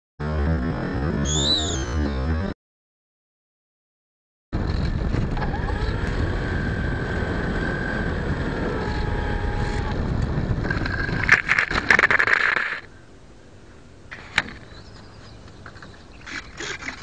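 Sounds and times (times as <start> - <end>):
wind buffeting camera: 4.6 - 13.1
model plane motor whine: 4.8 - 11.1.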